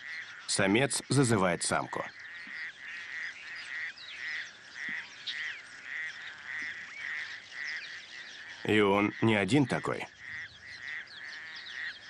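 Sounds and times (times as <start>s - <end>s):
toad croaking: 0.0s - 12.0s.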